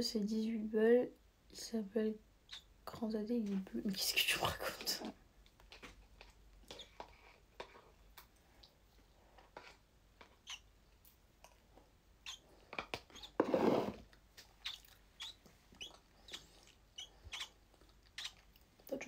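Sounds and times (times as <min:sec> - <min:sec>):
person chewing food: 0:05.4 - 0:13.4, 0:14.0 - 0:18.9.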